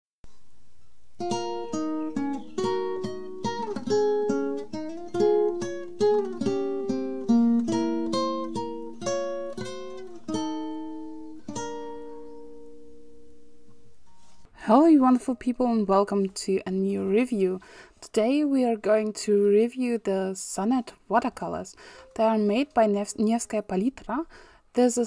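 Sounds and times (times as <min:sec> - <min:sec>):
plucked acoustic guitar melody: 0:01.1 - 0:14.5.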